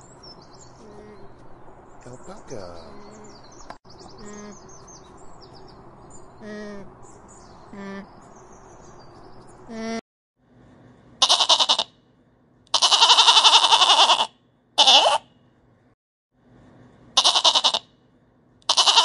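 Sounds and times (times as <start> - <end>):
faint bird chirps: 2.0 - 10.0
sheep bleating: 11.2 - 11.9, 12.7 - 15.2, 17.2 - 17.8, 18.7 - 19.0.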